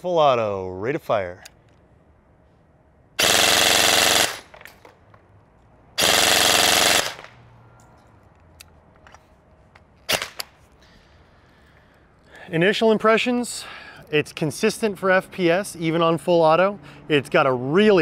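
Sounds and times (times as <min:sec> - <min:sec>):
airsoft gun firing full auto: 0:03.2 - 0:04.7, 0:06.0 - 0:07.4.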